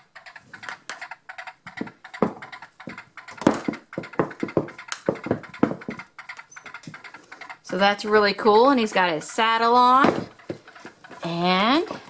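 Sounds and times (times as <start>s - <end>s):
electronic galloping hoofbeats: 1.7s - 10.6s.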